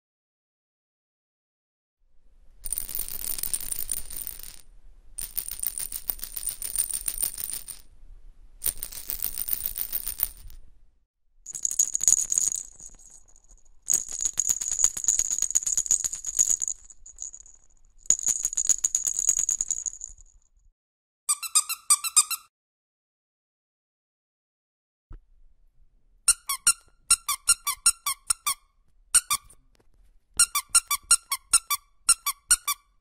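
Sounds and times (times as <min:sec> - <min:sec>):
plastic rattle shaken: 0:02.7 - 0:04.6, 0:08.6 - 0:10.6, 0:11.5 - 0:20.4.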